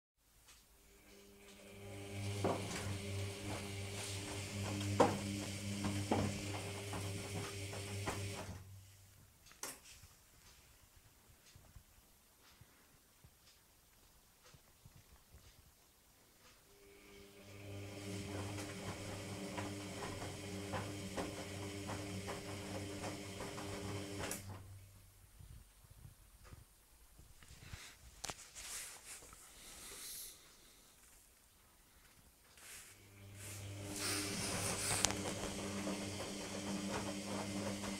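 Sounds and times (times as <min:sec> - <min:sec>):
washing machine motor humming: 0:01.0 - 0:08.7, 0:16.7 - 0:24.9, 0:33.0 - 0:37.9
water and laundry sloshing: 0:01.6 - 0:08.6, 0:17.6 - 0:24.6, 0:33.0 - 0:37.9
laundry thudding and sloshing: 0:33.6 - 0:37.9.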